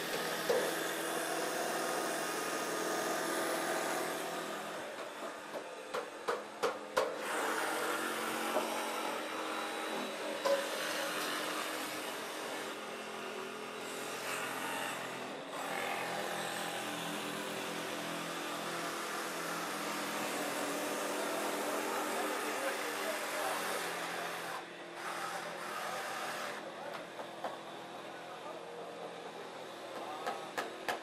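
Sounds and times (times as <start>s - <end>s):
jigsaw cutting wood: 7.2s - 13.0s, 13.8s - 26.7s.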